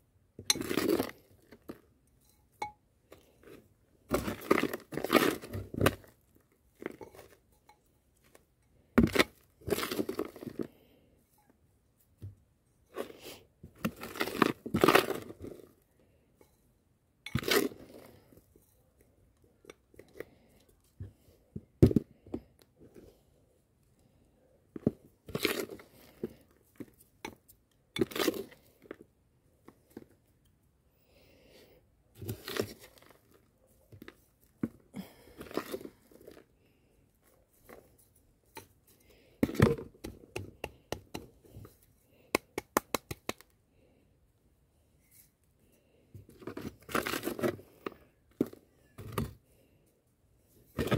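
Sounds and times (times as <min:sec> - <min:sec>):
spoon scraping potting mix: 0:00.3 - 0:21.3, 0:24.8 - 0:29.1, 0:32.1 - 0:34.5, 0:35.3 - 0:43.5, 0:45.0 - 0:49.4.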